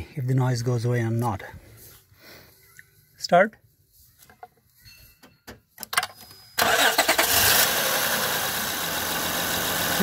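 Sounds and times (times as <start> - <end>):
car engine starting and idling: 6.6 - 10.0.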